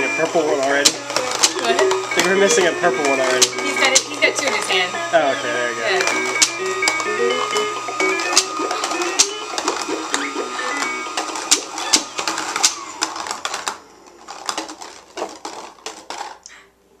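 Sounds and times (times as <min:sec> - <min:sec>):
electronic tune: 0:00.0 - 0:13.0
plastic balls clattering down a ramp: 0:00.3 - 0:04.2, 0:08.1 - 0:16.5.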